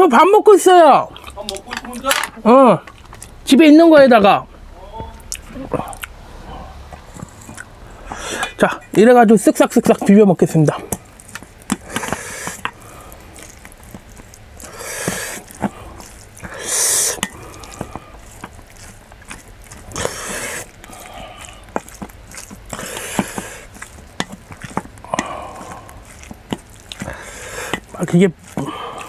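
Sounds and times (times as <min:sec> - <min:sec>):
spoon scraping bowl: 0:10.8 - 0:28.6.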